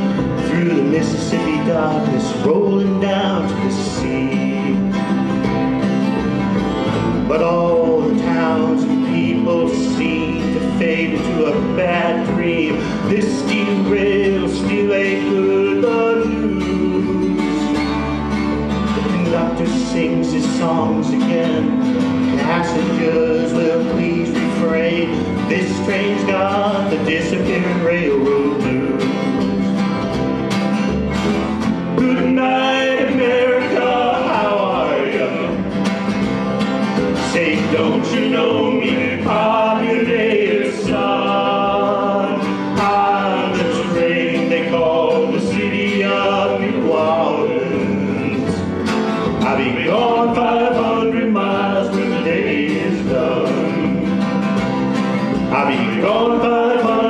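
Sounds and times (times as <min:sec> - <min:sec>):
men singing together: 0:00.0 - 0:05.5, 0:07.0 - 0:18.1, 0:19.0 - 0:29.5, 0:31.9 - 0:35.8, 0:37.1 - 0:57.0
acoustic guitars strummed: 0:00.0 - 0:57.0.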